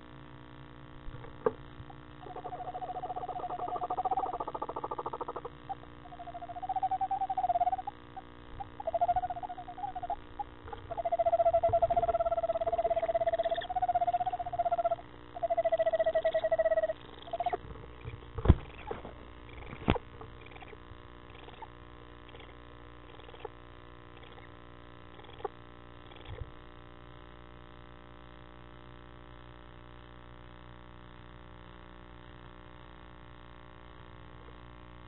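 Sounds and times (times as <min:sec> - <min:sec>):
owl trilling calls: 0:01.9 - 0:23.5, 0:24.1 - 0:25.5.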